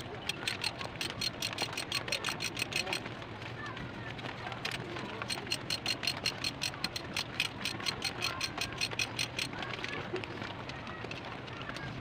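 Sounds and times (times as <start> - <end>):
ratchet wrench clicking: 0.3 - 3.0, 5.3 - 9.5.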